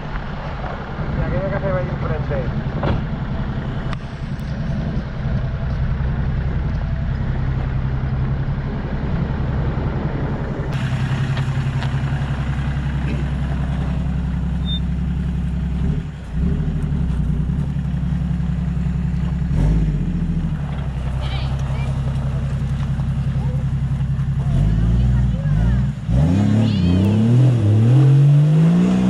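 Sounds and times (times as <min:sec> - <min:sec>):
vehicle engine droning: 0:00.0 - 0:29.0.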